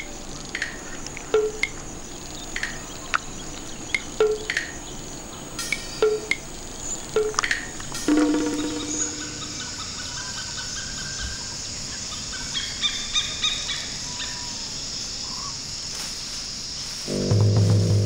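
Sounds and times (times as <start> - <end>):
high-pitched insect drone: 5.6 - 11.4
short bird calls: 7.1 - 11.4
background music: 7.2 - 10.1, 17.1 - 18.0
loud pitched call: 8.1 - 10.4.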